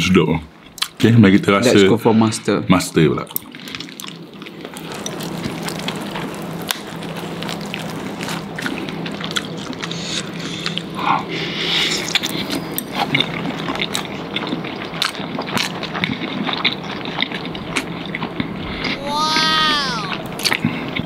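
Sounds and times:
people chewing and smacking: 0.6s - 1.6s, 3.0s - 21.0s.

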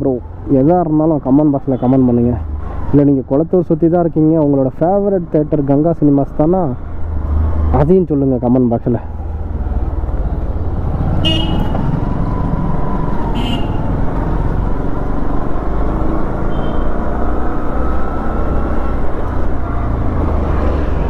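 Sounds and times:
road and wind noise: 0.0s - 21.0s
motorcycle horn toots: 11.2s - 11.8s, 13.4s - 13.9s, 16.5s - 16.9s.

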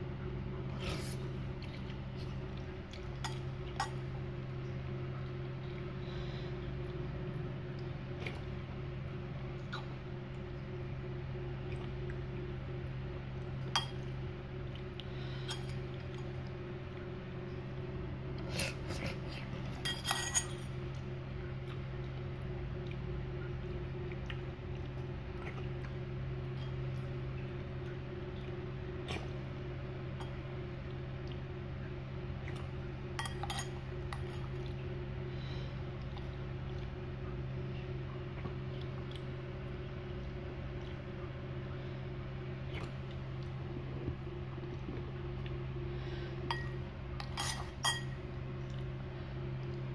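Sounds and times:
steady low hum: 0.0s - 49.9s
cutlery clinking on ceramic bowl: 19.8s - 20.8s, 33.2s - 34.5s, 46.5s - 48.2s.

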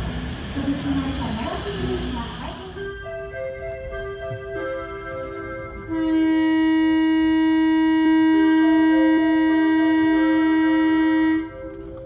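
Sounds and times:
train horn blast: 5.9s - 11.9s.

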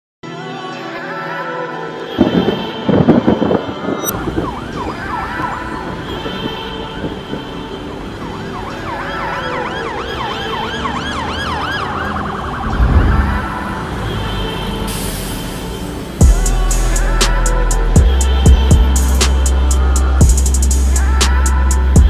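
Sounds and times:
emergency siren wailing: 2.3s - 14.9s.

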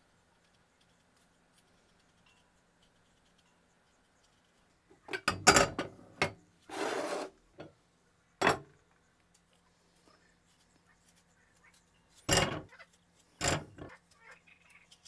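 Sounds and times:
scraping rasp: 6.7s - 7.3s.

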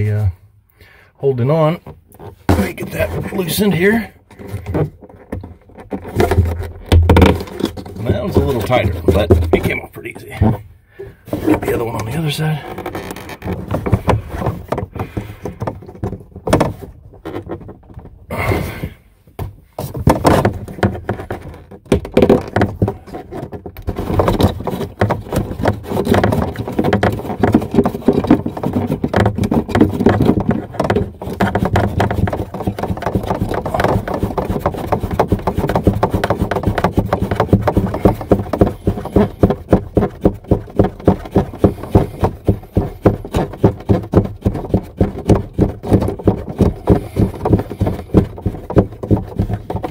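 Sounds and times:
plastic nut clicking and knocking: 4.2s - 9.7s, 19.4s - 49.9s.

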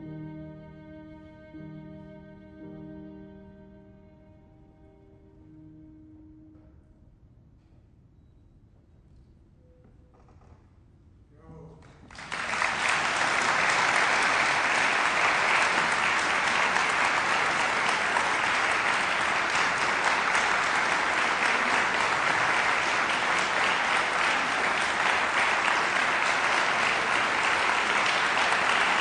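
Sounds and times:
audience applauding: 11.9s - 29.0s.

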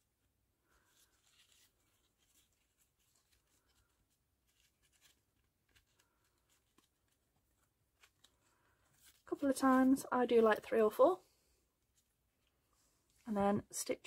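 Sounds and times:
ribbon and thread rustling: 0.0s - 13.4s.

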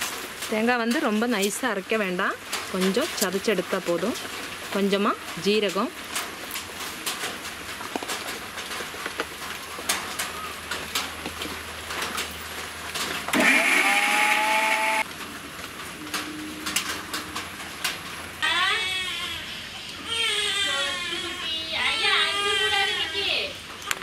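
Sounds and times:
mixer grinder motor running: 13.3s - 15.0s.

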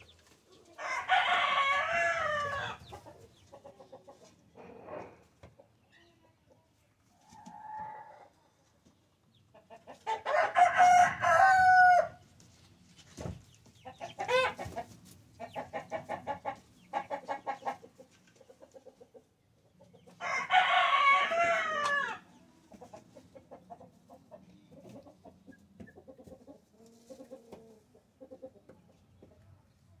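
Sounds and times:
chickens clucking: 0.0s - 30.0s
cockerel crowing: 0.8s - 2.8s, 10.1s - 12.2s, 20.2s - 22.2s.

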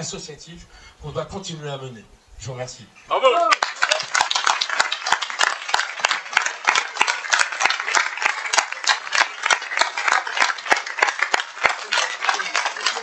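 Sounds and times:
audience applauding: 3.4s - 13.0s.

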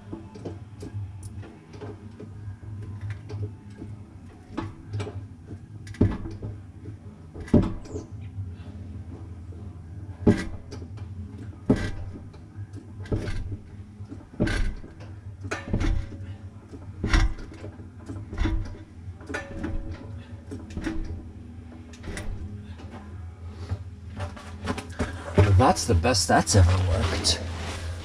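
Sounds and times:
steady low hum: 0.0s - 28.0s
jack pump clunks: 10.2s - 23.1s.

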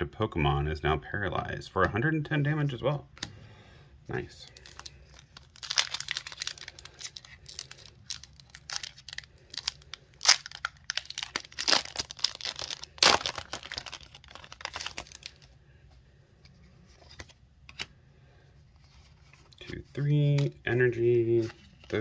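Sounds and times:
foil wrapper tearing and crinkling: 4.6s - 15.5s.

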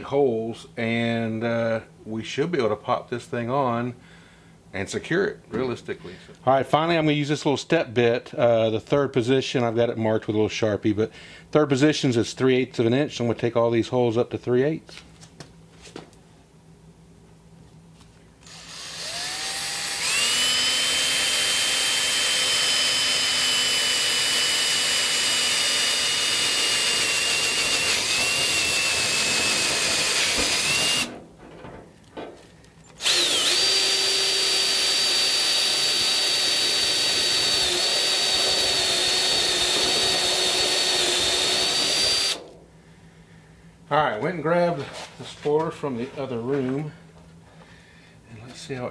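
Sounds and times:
cordless drill whining through metal: 18.4s - 31.1s, 32.9s - 42.6s.

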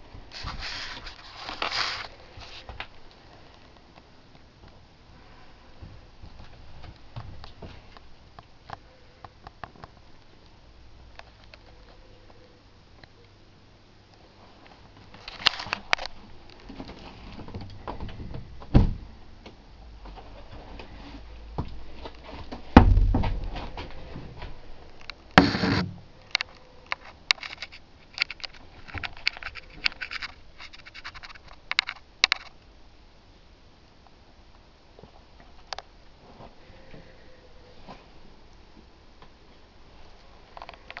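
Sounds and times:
wood scraping: 0.3s - 2.8s, 20.1s - 32.5s
heavy thuds: 22.4s - 24.6s
small clicks and rattles: 26.2s - 32.6s, 40.5s - 41.0s.

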